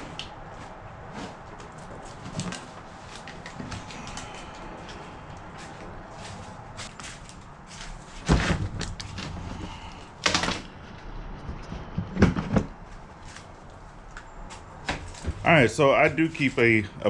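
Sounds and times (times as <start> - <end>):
objects knocking and bumping: 8.2 - 10.8, 11.4 - 12.9.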